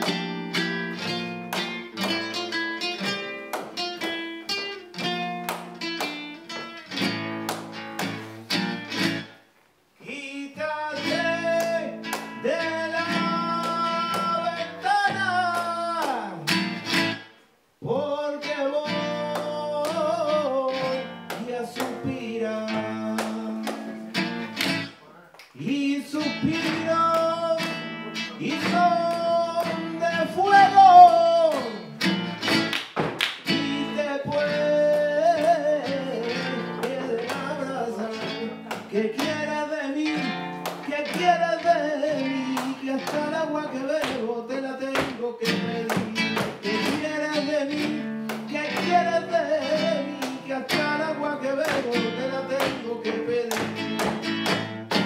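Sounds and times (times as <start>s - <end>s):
acoustic guitar strumming: 0.0s - 9.5s, 10.4s - 25.1s, 25.9s - 55.0s
percussive guitar hits: 31.5s - 33.6s, 45.8s - 47.2s, 53.5s - 55.0s
person singing ornamented lines: 33.6s - 53.8s.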